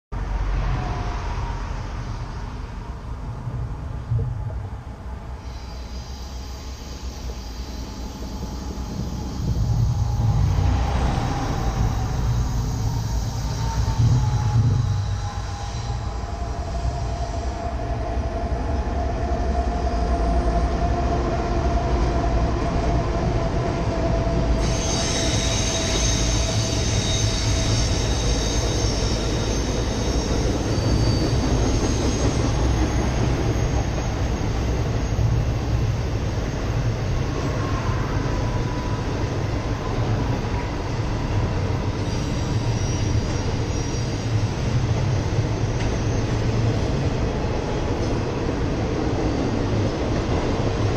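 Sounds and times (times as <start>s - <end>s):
diesel locomotive engine rumble: 0.1s - 50.9s
train cars rolling by: 0.2s - 50.9s
high wheel squeal: 5.3s - 20.9s, 23.8s - 48.4s.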